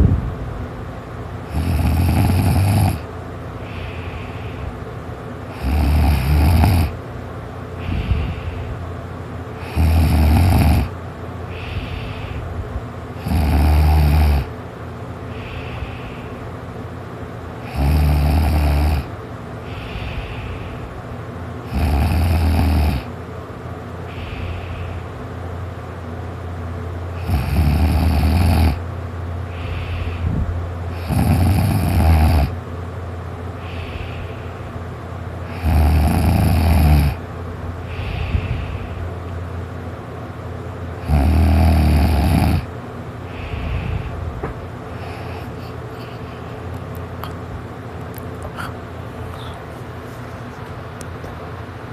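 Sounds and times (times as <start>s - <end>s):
person snoring: 1.5s - 4.5s, 5.5s - 7.0s, 9.6s - 10.9s, 13.2s - 14.5s, 17.6s - 19.1s, 21.7s - 23.1s, 27.2s - 28.8s, 30.9s - 32.6s, 35.5s - 37.2s, 41.0s - 42.7s
quiet breaths: 3.6s - 6.6s, 7.8s - 8.9s, 10.8s - 12.6s, 15.2s - 16.7s, 19.0s - 21.2s, 24.0s - 25.2s, 29.4s - 31.2s, 33.6s - 35.6s, 37.8s - 39.2s, 43.2s - 47.4s.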